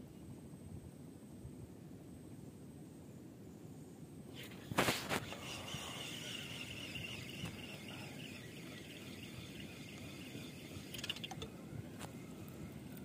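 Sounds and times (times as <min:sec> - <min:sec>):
low background noise: 0:00.0 - 0:13.0
high insect buzz: 0:04.3 - 0:13.0.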